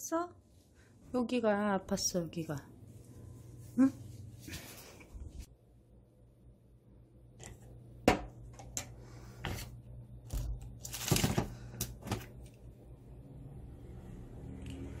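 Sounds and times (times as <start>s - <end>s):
plastic bag rustling: 10.8s - 12.4s.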